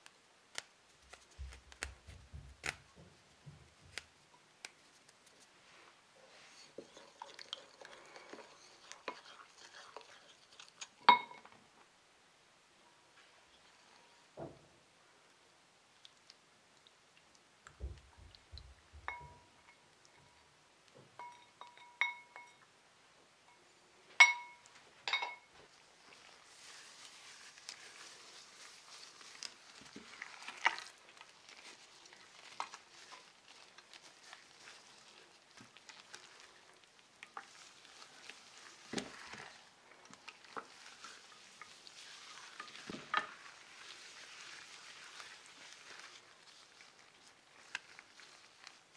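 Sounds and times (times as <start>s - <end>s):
wet squishing of hands in marinade: 6.3s - 11.1s, 25.7s - 48.9s
glass and ceramic clinks: 11.1s - 11.5s, 19.1s - 20.3s, 21.2s - 22.7s, 24.2s - 25.5s.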